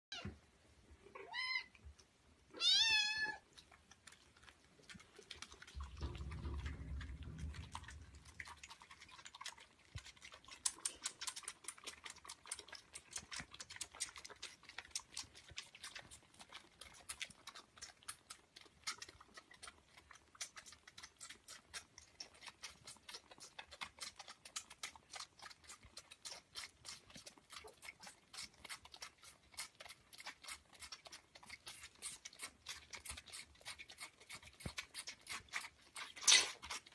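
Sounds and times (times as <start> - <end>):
kittens suckling clicks: 3.4 - 36.9
low rumble: 5.8 - 8.7.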